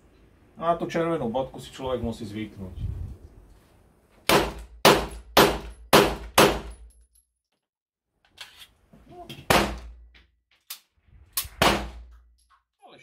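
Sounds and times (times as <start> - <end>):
pistol shots: 4.3 - 6.7, 11.6 - 12.1.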